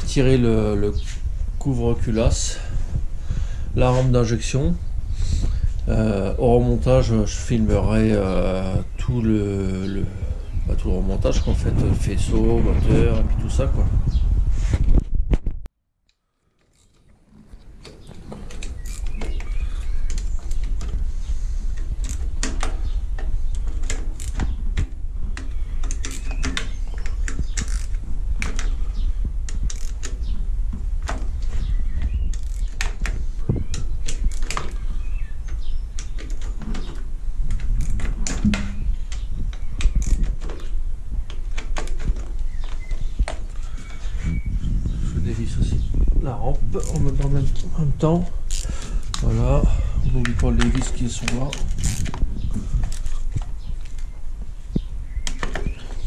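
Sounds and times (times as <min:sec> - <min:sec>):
low rumble: 0:00.0 - 0:15.6, 0:43.6 - 0:47.6.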